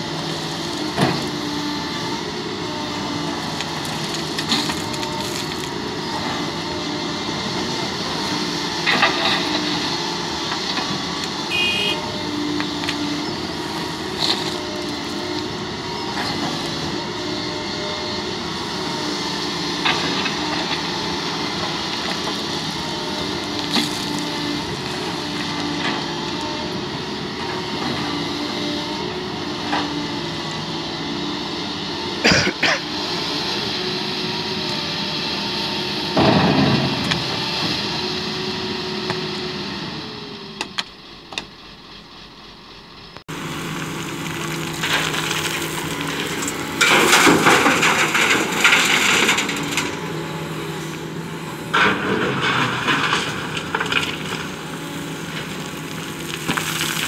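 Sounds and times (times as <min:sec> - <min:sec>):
excavator diesel engine running: 0:00.0 - 0:57.0
gravel rushing and clattering: 0:03.4 - 0:05.8, 0:19.8 - 0:26.4, 0:43.3 - 0:57.0.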